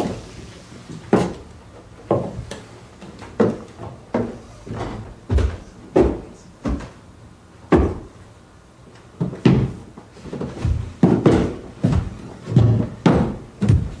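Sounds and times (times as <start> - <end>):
thumps and bangs inside closet: 2.1 - 7.0, 7.6 - 8.2, 9.2 - 14.0.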